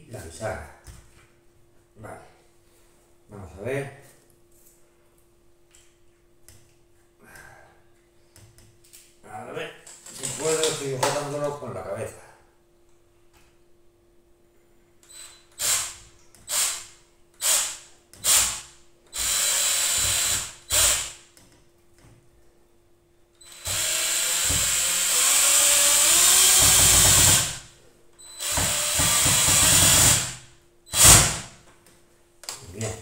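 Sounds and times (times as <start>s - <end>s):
cordless drill driving screws: 15.1s - 16.8s, 19.2s - 21.1s, 23.4s - 27.6s, 28.4s - 30.3s, 30.9s - 31.4s.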